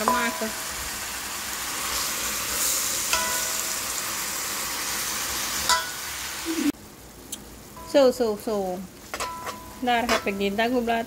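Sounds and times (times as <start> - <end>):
greens sizzling in a wok: 0.0 - 11.0
spatula clinking on wok: 3.1 - 3.7, 5.7 - 6.0, 9.2 - 10.4.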